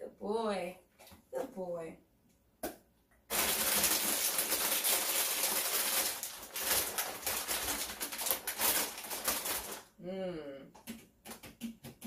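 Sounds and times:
plastic bag rustling: 0:03.3 - 0:10.0.

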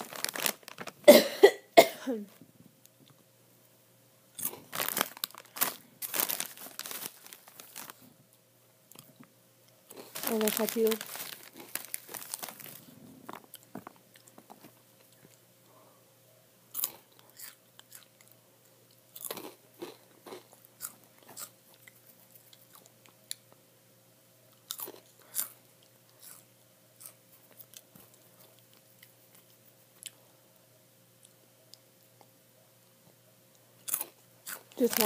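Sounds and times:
person chewing crunchy snacks: 0:00.0 - 0:01.1, 0:04.4 - 0:08.1, 0:09.9 - 0:15.4, 0:16.7 - 0:23.4, 0:24.6 - 0:30.2, 0:33.8 - 0:35.0.

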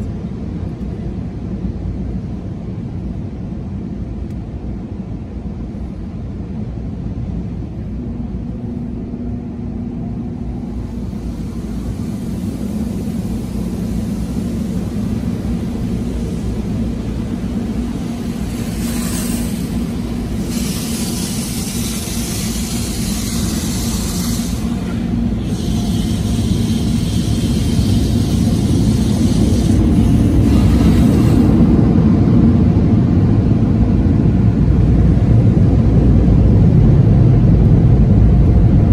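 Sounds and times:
car wash machinery rumble: 0:00.0 - 0:38.9
water spray hissing: 0:10.8 - 0:31.5.

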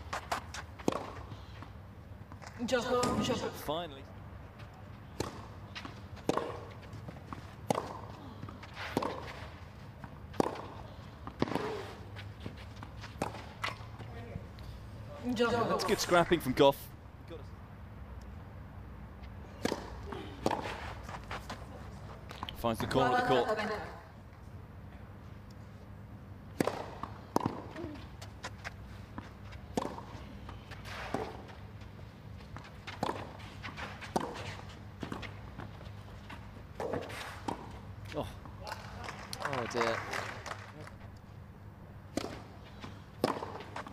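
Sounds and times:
rackets hitting tennis balls: 0:00.0 - 0:01.7, 0:02.3 - 0:03.6, 0:04.7 - 0:14.3, 0:19.4 - 0:23.4, 0:26.5 - 0:40.4, 0:42.1 - 0:43.9.

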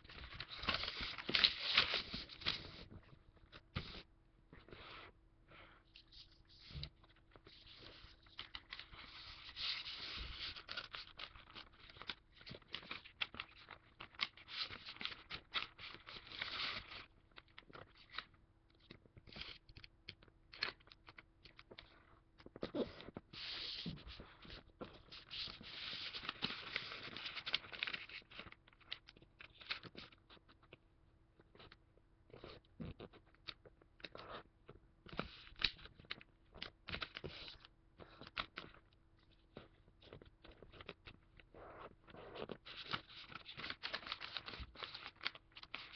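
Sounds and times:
paper being folded: 0:00.0 - 0:02.9, 0:06.0 - 0:19.9, 0:22.6 - 0:30.7, 0:42.3 - 0:45.9
crinkly paper clicks: 0:00.0 - 0:04.0, 0:06.0 - 0:30.8, 0:35.1 - 0:41.5, 0:42.4 - 0:45.9.

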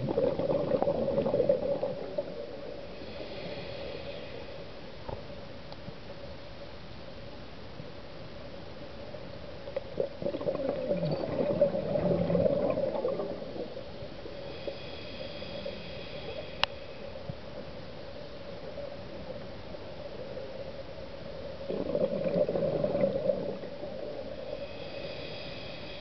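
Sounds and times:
underwater exhalation bubbles gurgling: 0:00.0 - 0:02.8, 0:09.9 - 0:13.8, 0:21.6 - 0:24.3.

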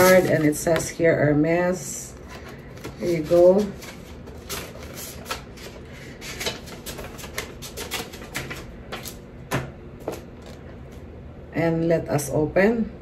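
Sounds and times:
paper rustling: 0:00.0 - 0:00.9, 0:02.2 - 0:09.2.

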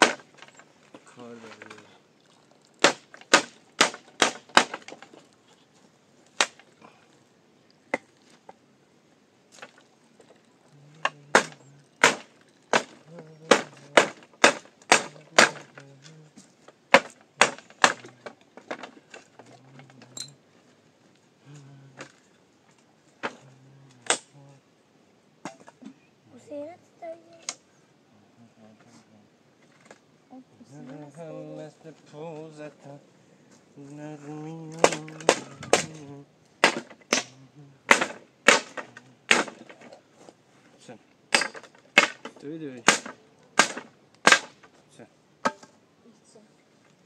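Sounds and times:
hammer nailing wooden boards: 0:00.0 - 0:00.5, 0:02.8 - 0:05.1, 0:11.0 - 0:15.8, 0:16.9 - 0:19.2, 0:37.9 - 0:39.8, 0:41.3 - 0:44.6.

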